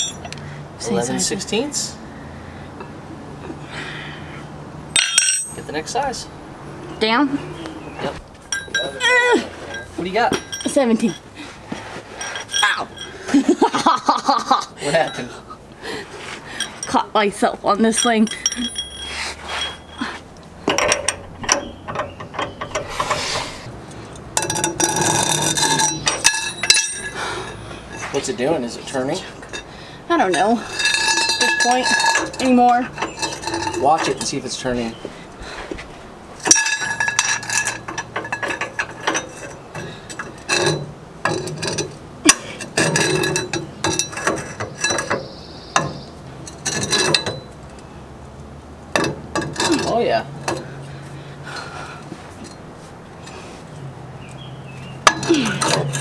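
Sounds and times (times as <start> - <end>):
wrench and steel bar clanking: 0.0 - 0.4, 4.9 - 5.9, 8.5 - 13.9, 16.6 - 17.1, 17.8 - 28.4, 29.2 - 35.0, 36.4 - 47.8, 48.9 - 50.7, 54.2 - 56.0
high squeak: 18.8 - 20.2.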